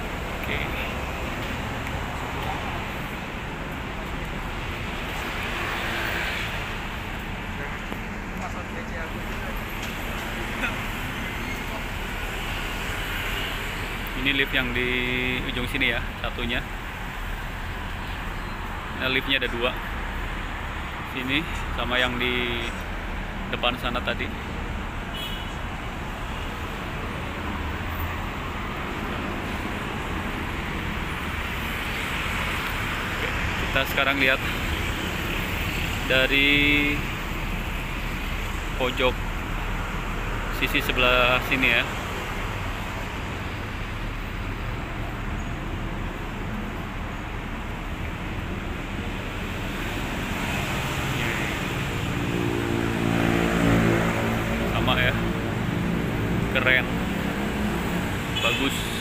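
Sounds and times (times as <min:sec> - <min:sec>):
dense road traffic hum: 0:00.0 - 0:59.0.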